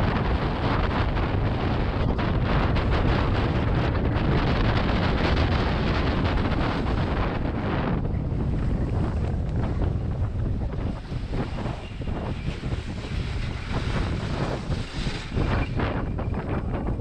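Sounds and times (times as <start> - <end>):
sled rattles and bumps: 0.0 - 17.0
wind on microphone: 0.0 - 17.0
sled runners scraping snow: 8.4 - 16.7.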